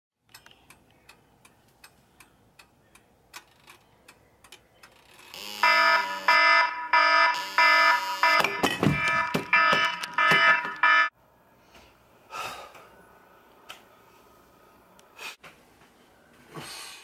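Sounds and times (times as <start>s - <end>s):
faint clock ticking: 0.3s - 5.0s
phone alarm beeping: 5.4s - 11.1s.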